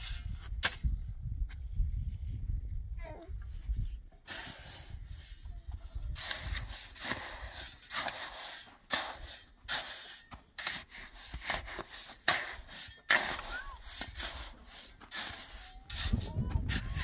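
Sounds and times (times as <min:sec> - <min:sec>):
shovel scraping through gravel: 0:04.3 - 0:05.4, 0:06.0 - 0:17.0.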